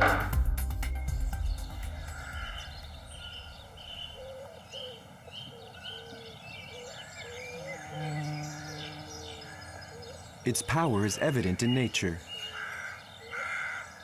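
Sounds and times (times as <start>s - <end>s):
soft outdoor hiss: 0.0s - 14.0s
songbirds singing: 0.0s - 14.0s.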